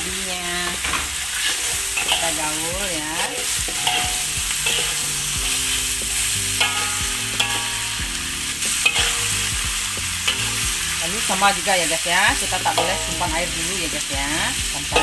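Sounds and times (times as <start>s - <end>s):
food sizzling in oil in a wok: 0.0s - 15.0s
metal spatula scraping a pan: 0.6s - 15.0s.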